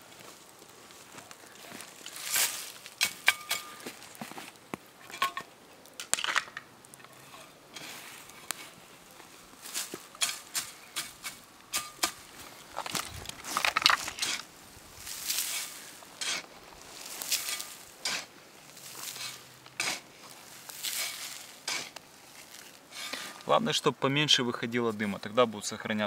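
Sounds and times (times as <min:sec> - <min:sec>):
soil tossed onto pine needles: 0:00.0 - 0:05.4, 0:06.0 - 0:23.6
shovel scraping soil: 0:02.1 - 0:04.4, 0:07.1 - 0:08.8, 0:09.6 - 0:23.6.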